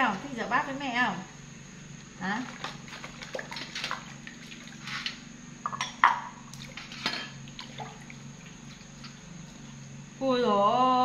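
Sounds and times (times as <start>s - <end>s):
water splashing in metal basin: 2.3s - 5.2s, 6.5s - 9.7s
sharp water drips: 2.5s - 5.2s, 6.5s - 9.8s.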